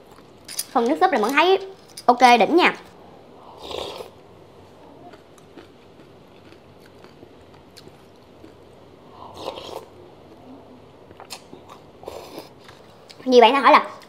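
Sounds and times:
quiet chewing: 4.7 - 13.3.

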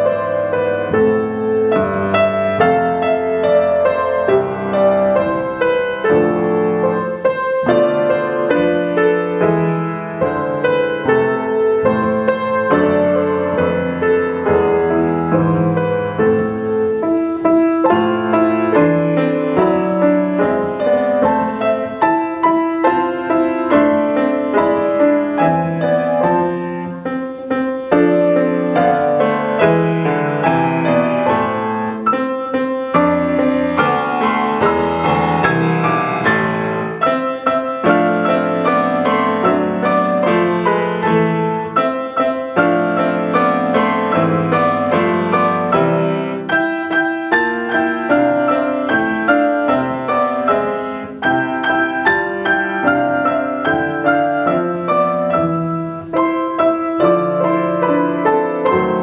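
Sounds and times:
grand piano playing: 0.0 - 59.0.

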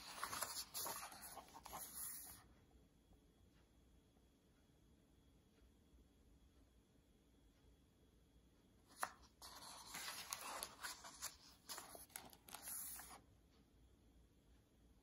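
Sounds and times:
paper page turning: 0.0 - 2.4, 8.9 - 13.2.

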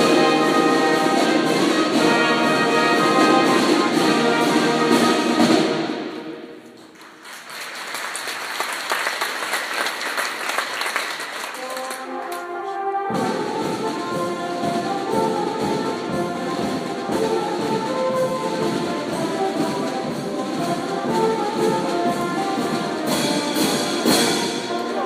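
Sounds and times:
marching band playing: 0.0 - 6.8, 8.9 - 25.0
audience applauding: 6.8 - 12.4.

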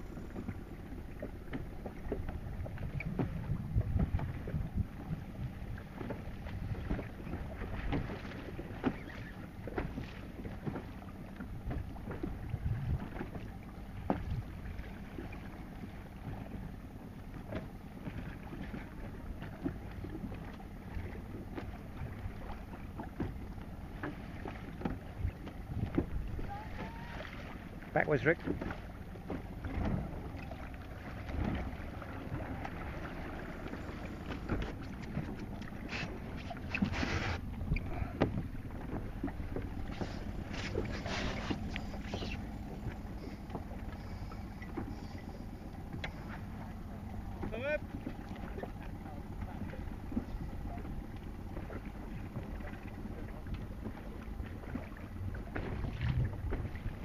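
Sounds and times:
wind buffeting microphone: 0.0 - 8.7, 11.7 - 13.4, 54.6 - 57.0
outboard motor running: 0.0 - 57.0
waves slapping boat hull: 0.0 - 57.0.

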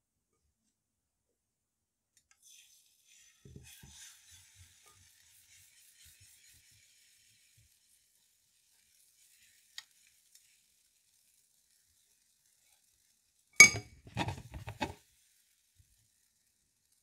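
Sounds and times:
metal spoon clinking kitchenware: 13.6 - 14.0
scraping and knocking: 13.6 - 15.0.

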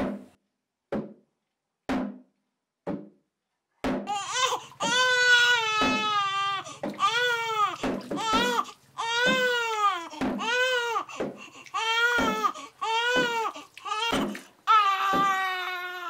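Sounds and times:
newborn baby crying: 4.1 - 16.0.

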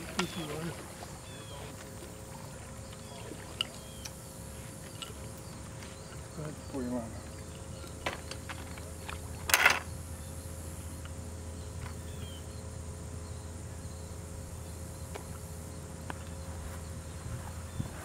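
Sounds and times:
insects chirring: 0.0 - 18.0
low hum: 0.0 - 18.0.

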